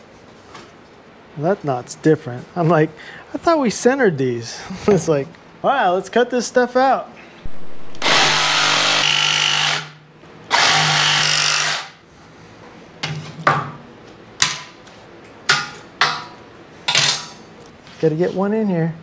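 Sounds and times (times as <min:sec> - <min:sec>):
jigsaw cutting plywood: 0:07.9 - 0:12.0.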